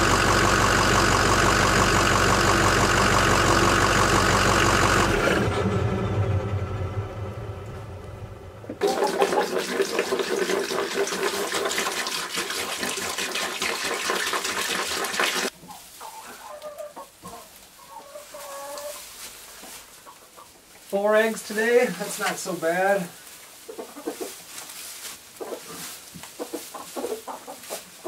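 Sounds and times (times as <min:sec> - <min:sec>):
truck engine idling: 0:00.0 - 0:08.8
chickens clucking: 0:08.7 - 0:11.6, 0:15.5 - 0:28.0
water pouring into a bowl: 0:08.8 - 0:15.5.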